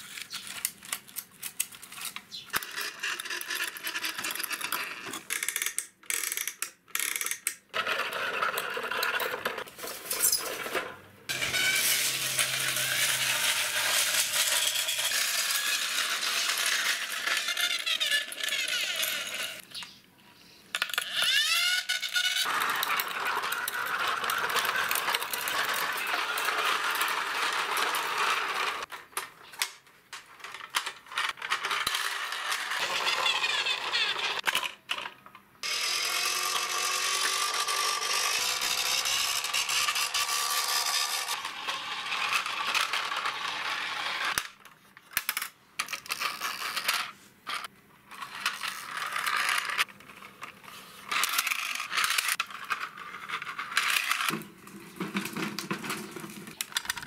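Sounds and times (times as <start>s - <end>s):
toy truck wheels rolling on concrete: 0.0s - 19.7s, 20.7s - 57.0s
plastic toy parts clicking: 0.1s - 7.8s, 44.3s - 54.4s, 55.5s - 57.0s.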